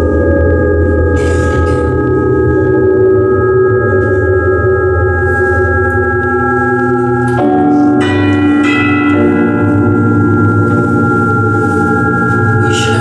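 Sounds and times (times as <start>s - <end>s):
bell-like drone tones: 0.0s - 13.0s
struck bell-like pitches: 3.2s - 13.0s.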